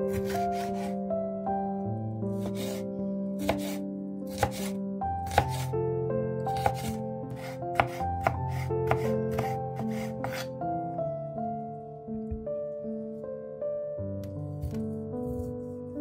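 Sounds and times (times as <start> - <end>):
soft background music: 0.0 - 16.0
knife chopping on wooden board: 0.1 - 0.9, 2.4 - 2.8, 3.4 - 5.7, 6.6 - 10.5.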